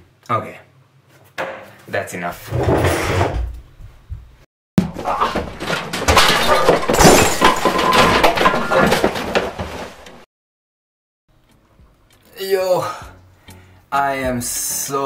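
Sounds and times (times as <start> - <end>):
glass shattering: 4.8 - 10.2
smashing and banging: 4.8 - 10.3.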